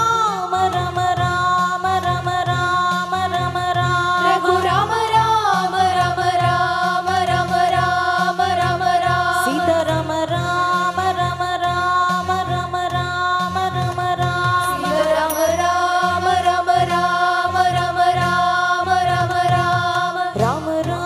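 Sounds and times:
women singing devotional song: 0.0s - 21.0s
hand drum rhythm: 13.2s - 21.0s.

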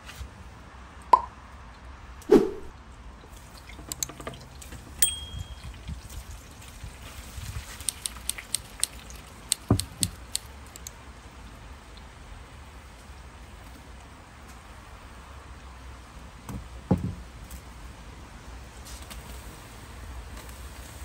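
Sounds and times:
chicken frying in oil: 3.3s - 10.6s
drip-like plops: 3.3s - 10.9s.

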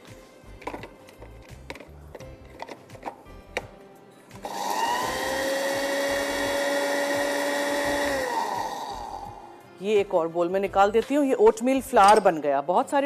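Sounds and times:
grinder motor whine: 4.5s - 9.3s.

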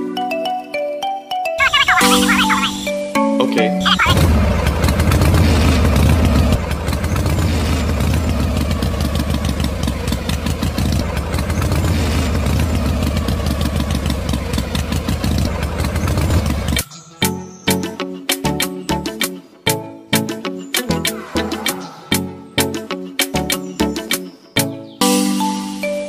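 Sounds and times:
tractor engine chugging: 4.0s - 16.8s.

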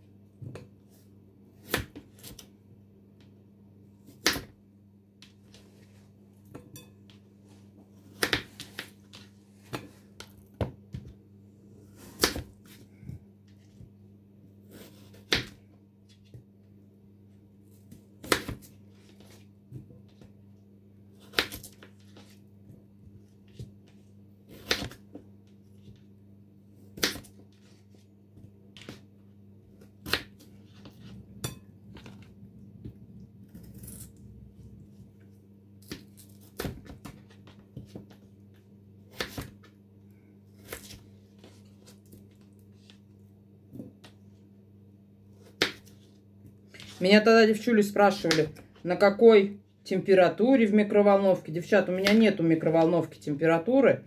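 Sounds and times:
knife cutting potatoes: 14.6s - 15.6s, 33.4s - 34.2s
steady low hum: 22.3s - 36.1s.

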